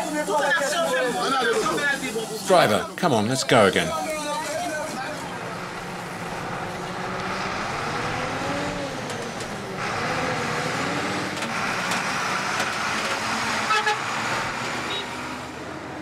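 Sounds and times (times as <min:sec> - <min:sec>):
bus engine and road noise: 0:00.0 - 0:16.0
bus horn toot: 0:13.6 - 0:14.2, 0:14.8 - 0:15.4.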